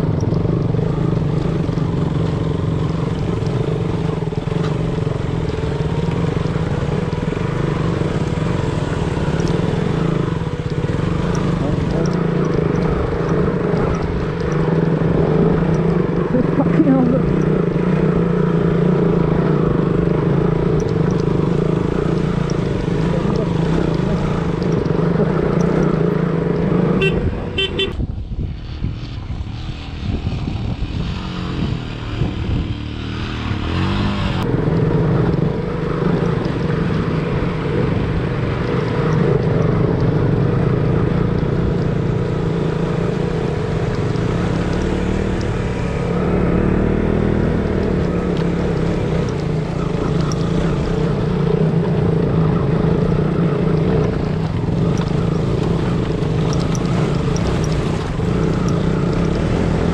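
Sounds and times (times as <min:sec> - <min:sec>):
motorcycle engine running: 0:00.0 - 0:59.9
wind noise: 0:27.0 - 0:40.1.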